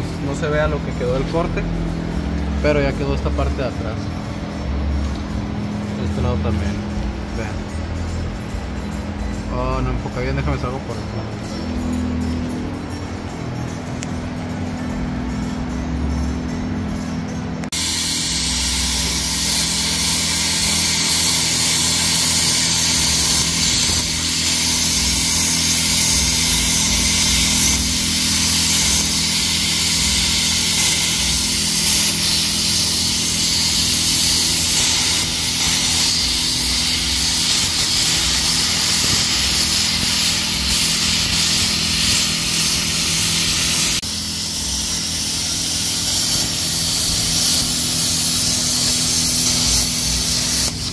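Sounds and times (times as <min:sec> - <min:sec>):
cutting torch hissing through steel: 0:17.7 - 0:50.9.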